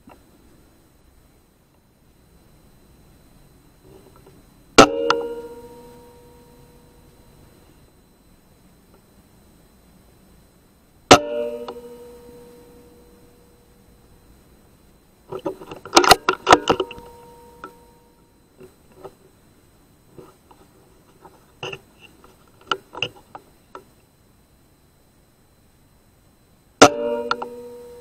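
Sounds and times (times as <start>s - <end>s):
ringing tone: 4.8s - 8.0s, 11.1s - 14.2s, 15.8s - 18.6s, 26.8s - 28.0s.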